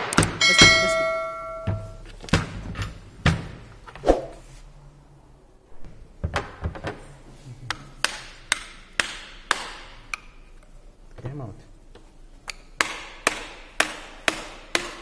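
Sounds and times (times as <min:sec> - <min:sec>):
metal tool knocking on metal housing: 0:00.4 - 0:02.0
metallic ring: 0:00.4 - 0:02.0.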